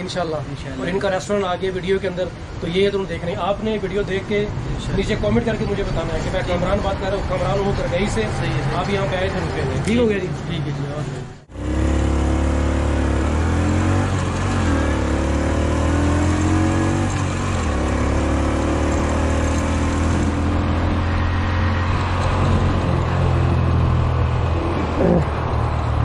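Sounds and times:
motorcycle engine riding: 11.5s - 26.0s.

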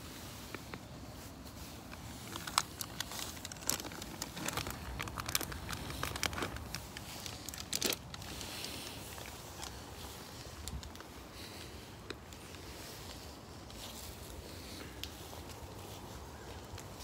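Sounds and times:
plastic packet crinkling: 1.9s - 11.0s.

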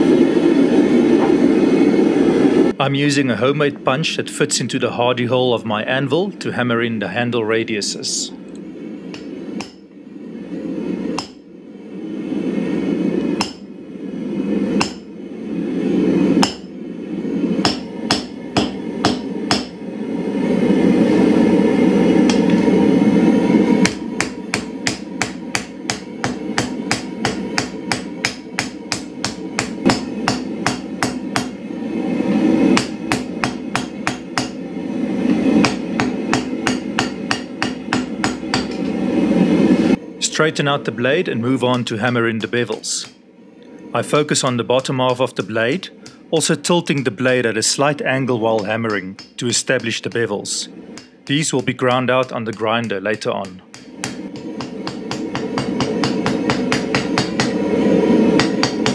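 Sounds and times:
hammer clanging on anvil: 17.7s - 19.7s, 23.8s - 31.6s, 35.6s - 38.9s, 48.5s - 50.2s, 51.3s - 57.6s, 58.4s - 58.9s.

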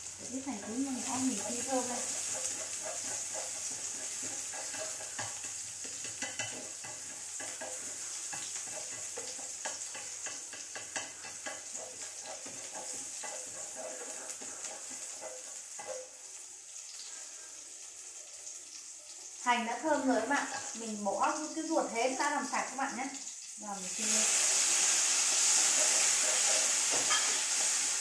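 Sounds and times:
shallots sizzling in frying pan: 0.0s - 28.0s
chopsticks tapping a pan: 0.5s - 16.2s, 25.7s - 27.9s.

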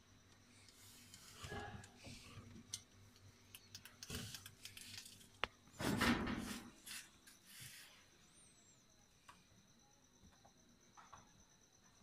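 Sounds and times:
scraping rustle: 4.1s - 8.1s.

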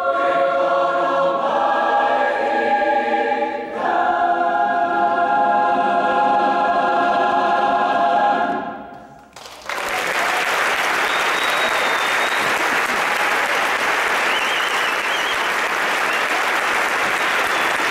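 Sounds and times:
audience applause: 9.3s - 17.9s.

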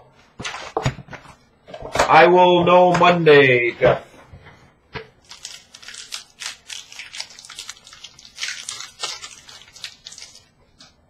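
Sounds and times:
card pack wrapper tearing: 5.2s - 11.0s.

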